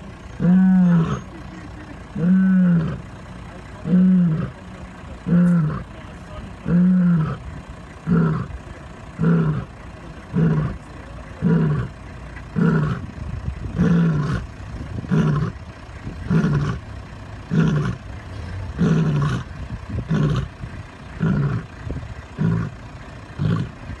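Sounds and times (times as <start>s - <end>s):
lioness roaring: 0.4s - 1.3s, 2.2s - 3.0s, 3.8s - 4.6s, 5.2s - 5.9s, 6.6s - 7.4s, 8.0s - 8.6s, 9.2s - 9.7s, 10.3s - 10.8s, 11.4s - 11.9s, 12.6s - 13.1s, 13.7s - 15.6s, 16.2s - 16.8s, 17.5s - 18.0s, 18.7s - 20.6s, 21.2s - 21.7s, 22.4s - 22.8s, 23.4s - 23.8s.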